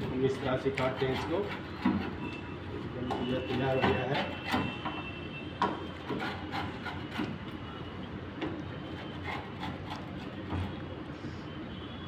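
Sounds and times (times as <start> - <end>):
pizza cutter scraping on wood: 0.0 - 2.4, 3.0 - 5.0, 5.8 - 7.4, 8.8 - 10.8.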